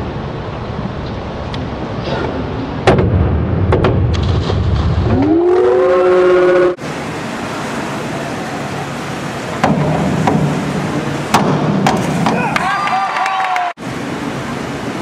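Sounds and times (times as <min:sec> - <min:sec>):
indoor pool hall hum: 0:00.0 - 0:15.0
springboard knocks: 0:02.8 - 0:04.6, 0:09.6 - 0:10.7, 0:11.3 - 0:12.5
person whooping: 0:05.2 - 0:06.8, 0:12.4 - 0:13.8.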